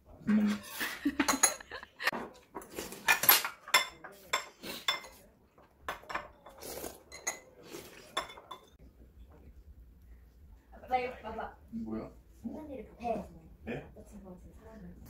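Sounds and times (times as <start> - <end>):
spoons clinking against bowls: 0.6 - 1.8, 3.1 - 5.2, 5.9 - 8.8.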